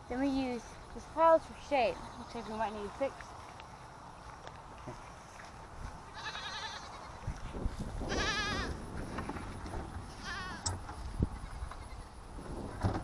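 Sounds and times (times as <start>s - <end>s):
goat bleating: 6.1s - 7.2s, 8.1s - 8.8s, 10.1s - 10.7s.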